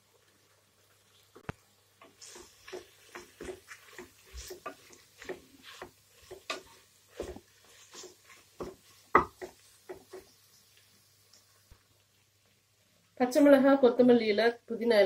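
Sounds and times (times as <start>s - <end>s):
spoon scraping and knocking pot: 2.0s - 10.4s.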